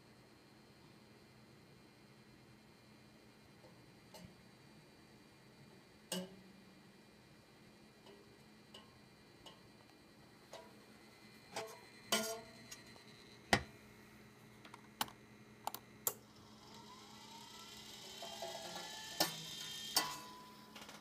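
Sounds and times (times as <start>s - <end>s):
whir rising in pitch: 16.4s - 20.0s.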